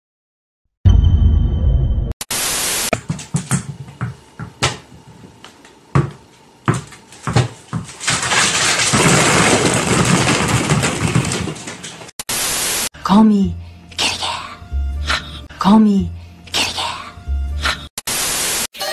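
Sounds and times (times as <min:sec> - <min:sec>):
balls bouncing on wooden floor: 0:02.9 - 0:12.1
plastic balls clattering: 0:07.0 - 0:12.2.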